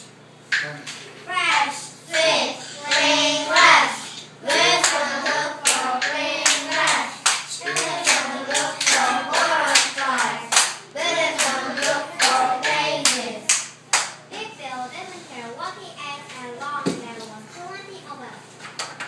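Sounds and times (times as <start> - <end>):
children singing: 2.1 - 13.5
hands clapping in rhythm: 4.5 - 14.2.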